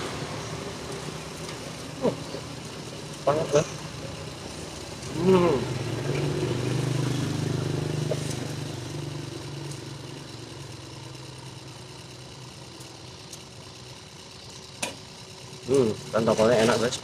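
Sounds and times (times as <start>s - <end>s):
faint street background: 0.0s - 17.0s
motorcycle engine passing: 3.5s - 10.8s.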